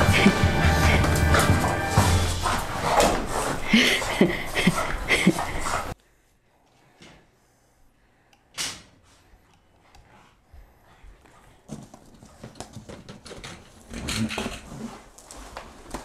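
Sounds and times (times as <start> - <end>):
dog playing with rope toy: 0.0 - 6.0
dog mouthing noises: 2.4 - 6.0.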